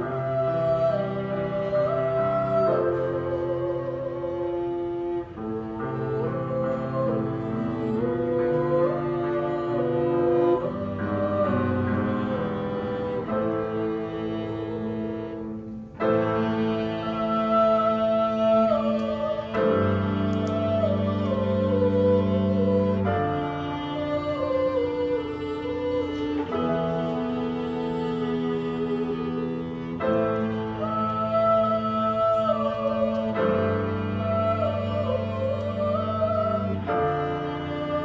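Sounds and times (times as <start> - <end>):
cello: 0.0 - 38.0
violin: 0.0 - 38.0.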